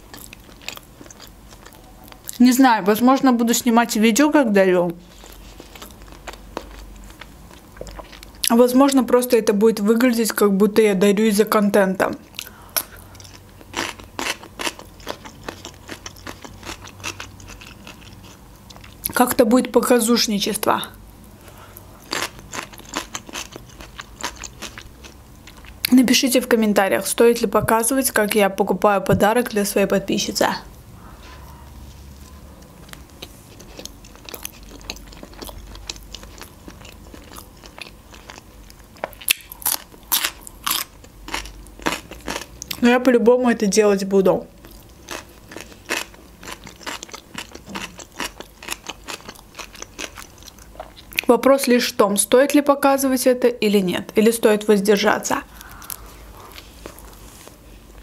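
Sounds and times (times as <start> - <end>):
chewing bread: 0.1 - 2.4, 5.1 - 8.5, 12.3 - 19.2, 21.7 - 25.9, 32.2 - 42.8, 44.6 - 51.3
cucumber crunching: 0.1 - 2.4, 32.8 - 42.8, 44.6 - 51.3.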